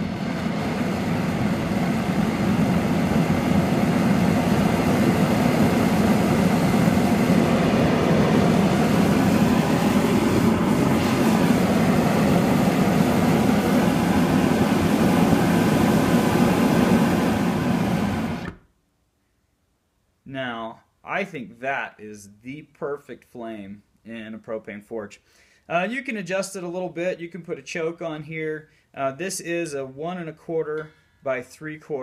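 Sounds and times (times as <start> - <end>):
gas burner jet flame rushing: 0.0 - 18.6.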